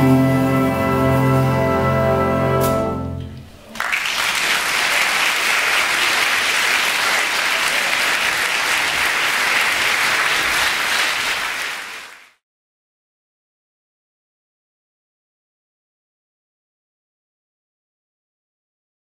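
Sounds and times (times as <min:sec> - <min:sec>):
audience applauding: 0:03.6 - 0:12.4.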